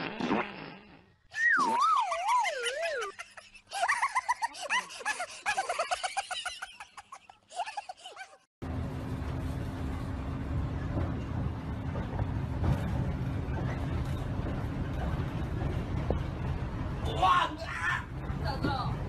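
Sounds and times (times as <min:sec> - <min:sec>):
bus engine rumble: 0:08.6 - 0:19.0.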